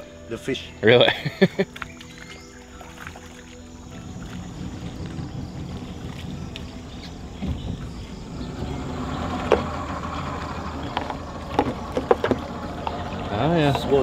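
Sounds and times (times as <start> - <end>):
boat motor idling: 0.0 - 14.0
sharp knocks and clicks: 10.9 - 13.0.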